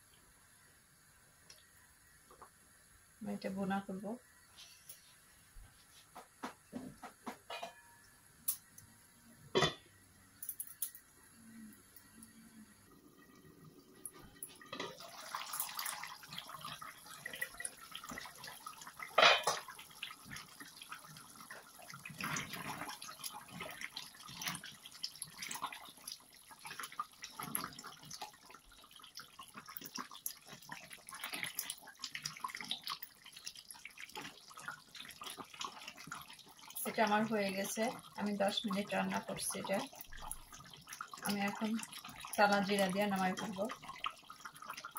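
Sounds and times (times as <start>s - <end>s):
metal pan lid clank: 7.5s - 7.9s, 9.6s - 9.8s, 19.2s - 19.6s
curry gravy bubbling and crackling: 11.2s - 44.9s.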